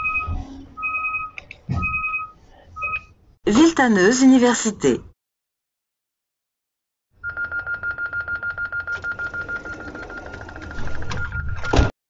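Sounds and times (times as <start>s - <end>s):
fast electronic warning beeps: 7.2s - 11.8s.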